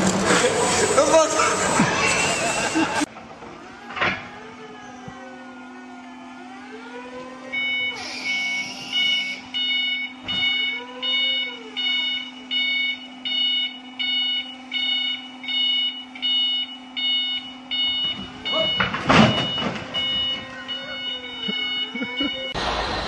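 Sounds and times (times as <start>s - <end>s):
electric motor hum and whine: 0.0s - 18.5s
forklift warning beeper: 7.5s - 22.9s.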